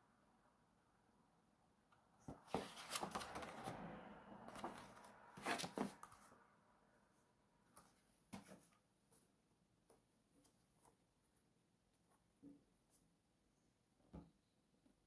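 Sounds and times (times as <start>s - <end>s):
album pages rustling and flapping: 2.3s - 3.9s, 4.5s - 6.3s.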